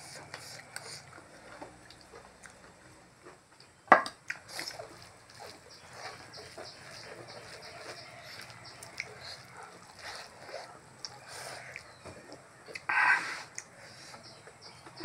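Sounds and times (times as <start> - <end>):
chewing and lip smacking: 0.1 - 15.0
hands squishing wet food: 4.2 - 15.0.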